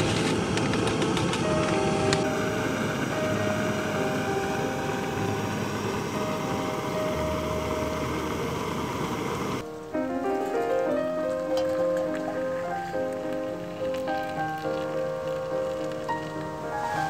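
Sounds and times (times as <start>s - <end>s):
gas stove burner hissing roar: 0.0s - 9.7s, 10.5s - 17.0s.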